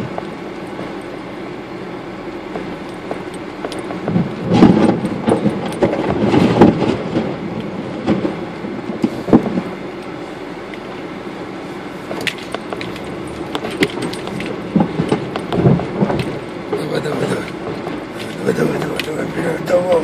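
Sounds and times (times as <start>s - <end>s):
car rumbling on rutted dirt road: 0.0s - 20.0s
bumps knocks and rattles: 2.5s - 8.4s, 12.1s - 19.2s.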